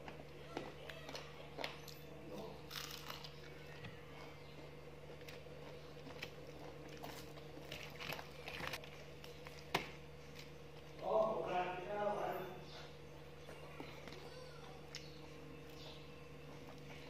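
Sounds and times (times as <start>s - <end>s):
crunching and chewing fried chicken: 0.0s - 11.0s
steady low hum: 0.0s - 17.0s.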